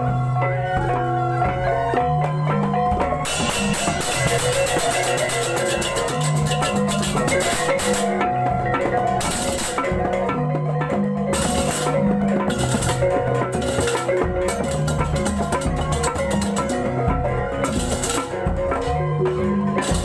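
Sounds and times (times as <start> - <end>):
gongs playing pitched strokes: 0.0 - 20.0
hand drums: 0.0 - 20.0
rapid cymbal clashing: 3.2 - 10.1.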